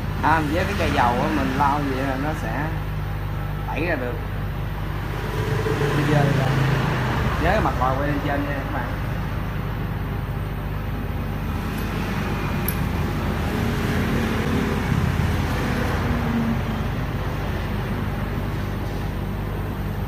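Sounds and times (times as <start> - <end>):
low mechanical hum and rumble: 0.0 - 20.0.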